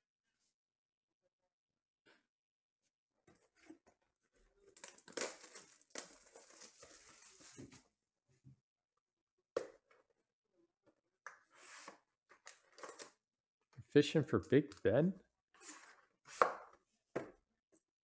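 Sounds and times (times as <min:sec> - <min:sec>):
plastic shrink wrap tearing: 0:04.8 - 0:07.6.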